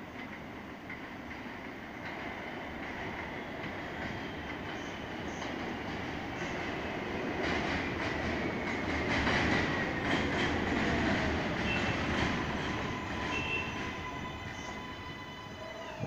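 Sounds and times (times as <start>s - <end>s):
train wheel and rail noise: 0.0s - 16.0s.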